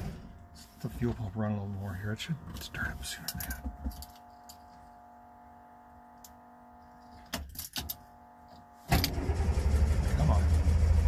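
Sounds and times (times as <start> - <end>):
starter cranking engine: 8.9 - 11.0.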